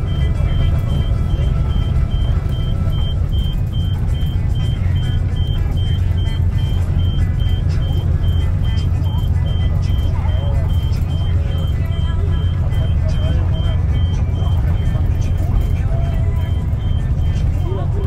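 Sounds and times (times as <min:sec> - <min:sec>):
bus rumbling: 0:00.0 - 0:18.0
high electronic beep: 0:00.0 - 0:18.0.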